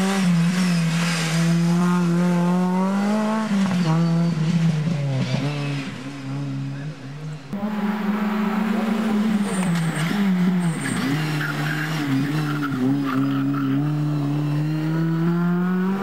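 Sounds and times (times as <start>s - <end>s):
race car engine revving: 7.5s - 16.0s.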